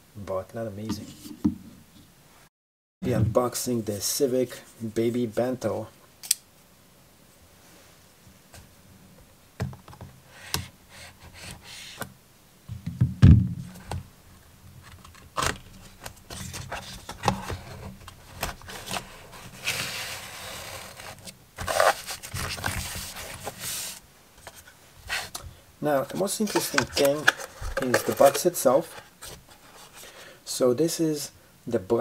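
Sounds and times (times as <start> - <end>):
cardboard rustling: 14.8 - 25.4, 26.0 - 30.1
cardboard box scraping and sliding: 18.6 - 25.3.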